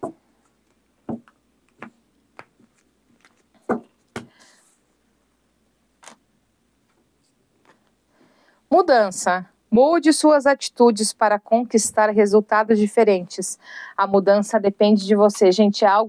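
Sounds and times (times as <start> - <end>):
cards tapping and clicking: 0.0 - 4.4.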